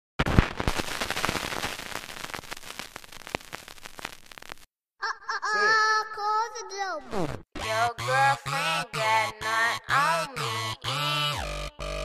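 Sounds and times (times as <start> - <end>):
dense crackling with sharp pops: 0.2 - 4.7
person singing: 7.6 - 11.2.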